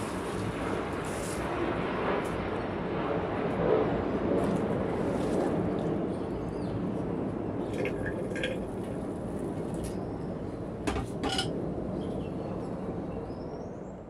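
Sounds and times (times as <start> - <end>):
background hum: 0.0 - 14.0
water pouring into a metal sink: 7.7 - 8.8
kettle clanking in metal sink: 7.8 - 8.7, 10.9 - 11.5.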